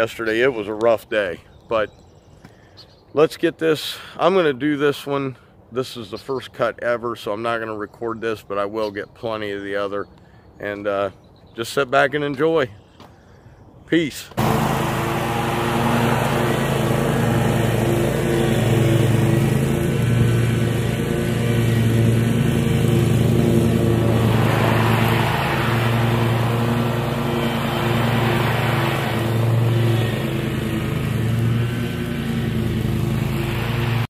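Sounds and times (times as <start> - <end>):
riding mower engine running: 14.3 - 34.0.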